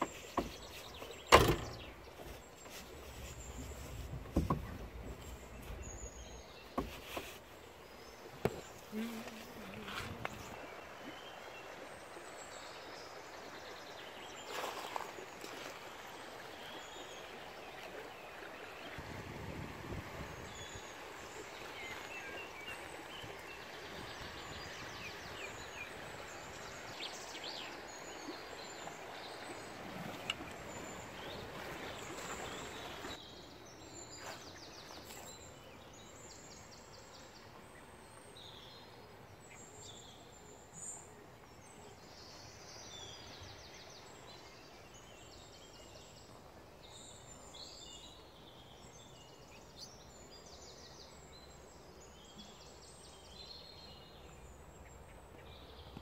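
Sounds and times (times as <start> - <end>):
birds chirping: 0.0 - 15.6, 20.4 - 56.0
river water rushing: 7.5 - 33.2.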